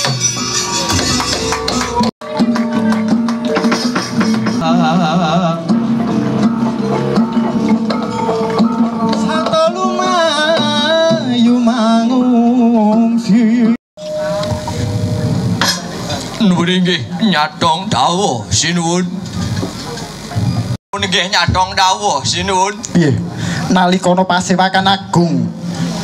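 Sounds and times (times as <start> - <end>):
gongs and metallophones ringing: 0.0 - 10.1, 14.0 - 16.6
wavering melody with vibrato: 0.3 - 11.6, 14.0 - 16.3.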